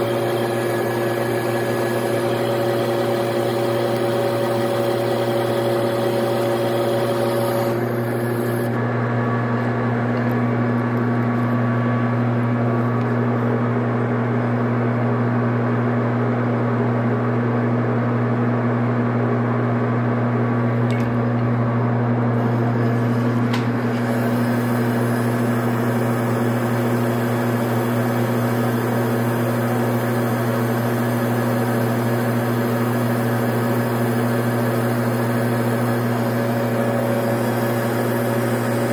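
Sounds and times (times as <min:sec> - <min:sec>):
lathe motor hum: 0:00.0 - 0:13.6, 0:21.2 - 0:38.9.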